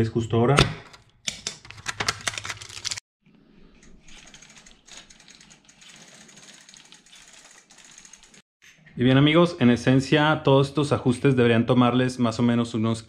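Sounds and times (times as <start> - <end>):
rapid mechanical clicking: 4.0 - 8.4.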